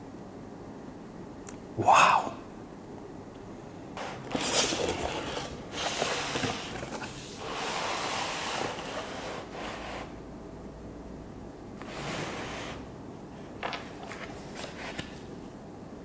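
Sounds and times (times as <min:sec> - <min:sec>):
cardboard box scraping: 0:04.0 - 0:10.1.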